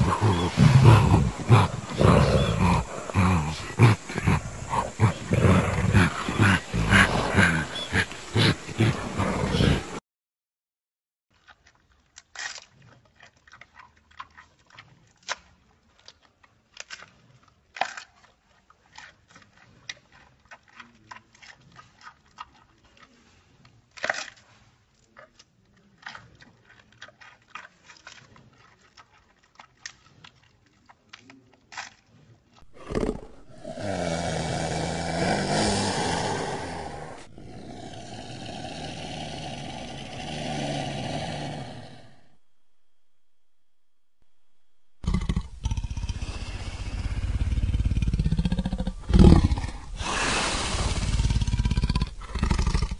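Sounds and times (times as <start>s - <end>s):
panda chewing bamboo: 0.0s - 9.9s, 45.0s - 52.9s
leopard growl: 0.0s - 10.0s, 32.6s - 42.4s, 45.0s - 52.9s.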